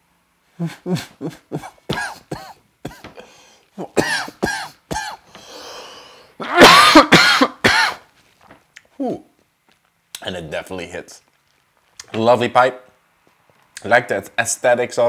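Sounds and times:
man coughing: 0:00.6 - 0:05.2, 0:06.4 - 0:08.0.

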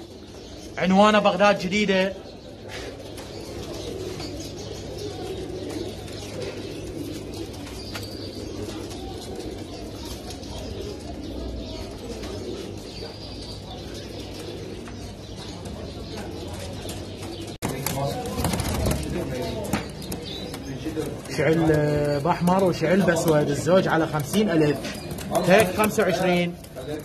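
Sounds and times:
pigeons cooing: 0:00.0 - 0:27.0
small birds chirping: 0:00.0 - 0:27.0
wings flapping: 0:17.4 - 0:27.0.

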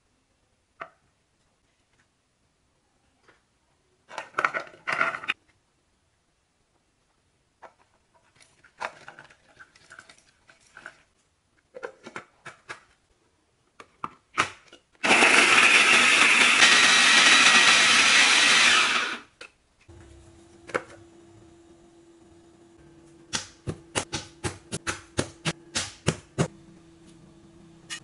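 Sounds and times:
electric food chopper running: 0:15.0 - 0:19.3, 0:19.9 - 0:23.0.

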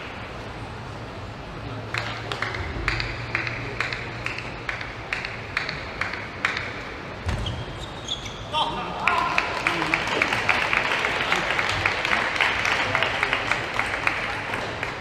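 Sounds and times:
table tennis ball bouncing: 0:02.0 - 0:07.5.

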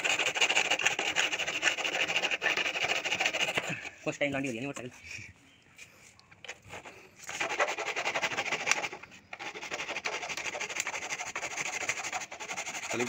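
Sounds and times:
hacksaw sawing through plastic: 0:00.0 - 0:03.8, 0:06.7 - 0:13.0.

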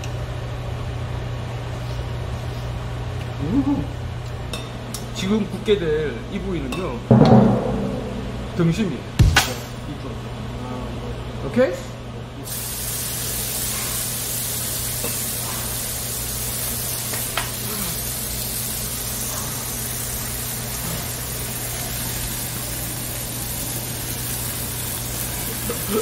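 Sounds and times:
meat sizzling on grill: 0:12.4 - 0:26.0.

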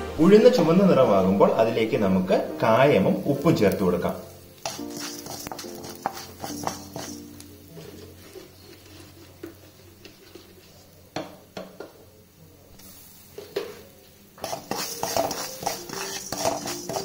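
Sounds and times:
wooden spatula scraping metal pan: 0:04.6 - 0:11.0, 0:14.4 - 0:17.0.

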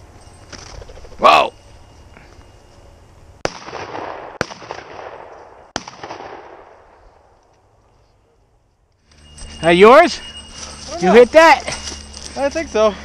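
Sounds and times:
shotgun shots: 0:03.4 - 0:07.0
rolling echo: 0:03.4 - 0:07.9.

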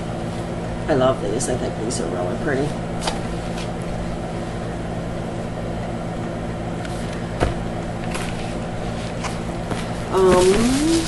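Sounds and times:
steady room hum: 0:00.0 - 0:11.0.

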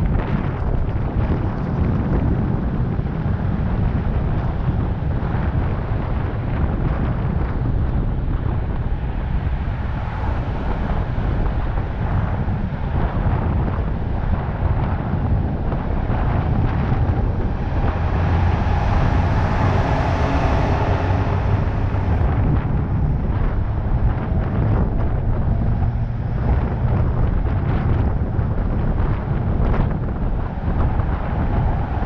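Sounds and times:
road and traffic noise: 0:00.0 - 0:32.0
vehicle driving at speed: 0:00.0 - 0:32.0
wind buffeting microphone: 0:00.0 - 0:32.0.

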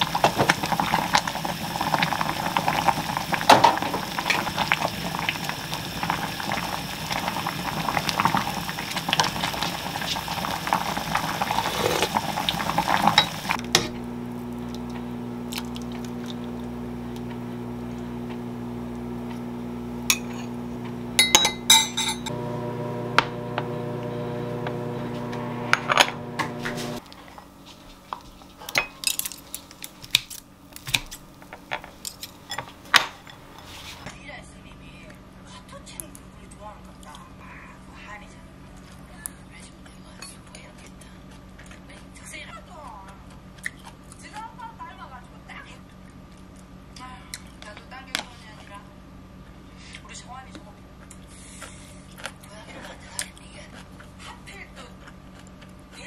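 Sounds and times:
soup boiling hard: 0:00.0 - 0:27.2
steady hum: 0:10.5 - 0:28.0
dishes and cutlery clinking: 0:13.1 - 0:13.5, 0:21.2 - 0:22.3
metal ladle clinking on bowl: 0:21.2 - 0:22.3.

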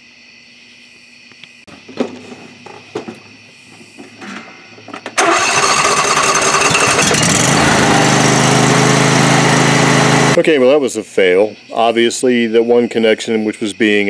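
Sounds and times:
engine starter knocks and clicks: 0:01.7 - 0:07.5
lawn tractor engine running: 0:01.7 - 0:10.4.

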